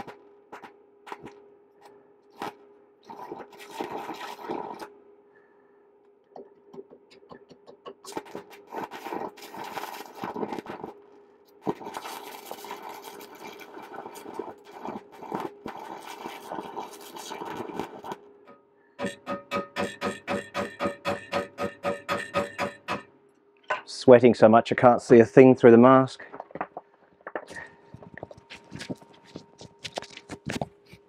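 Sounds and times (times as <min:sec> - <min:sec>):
welding arc crackling: 0:00.0 - 0:01.4, 0:02.3 - 0:04.9, 0:08.0 - 0:18.3, 0:19.0 - 0:23.0.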